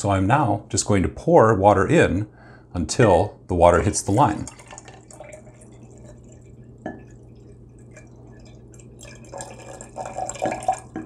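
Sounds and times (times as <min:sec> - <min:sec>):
water trickling into a glass jar: 0:03.9 - 0:11.0.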